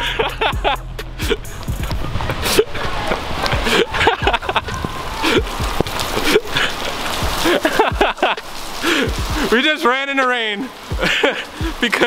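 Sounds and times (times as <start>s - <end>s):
man laughing: 0.0s - 1.6s, 2.4s - 2.8s, 3.6s - 9.7s, 10.9s - 12.0s
wind noise on microphone: 0.0s - 9.5s
rushing rain: 0.0s - 12.0s
man breathing hard: 8.8s - 9.5s, 11.4s - 11.8s.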